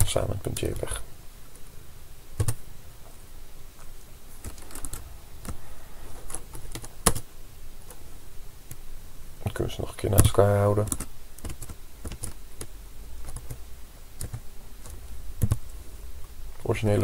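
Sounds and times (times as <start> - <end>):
keyboard and mouse clicks: 2.4 - 2.6, 10.2 - 13.6, 14.2 - 15.8.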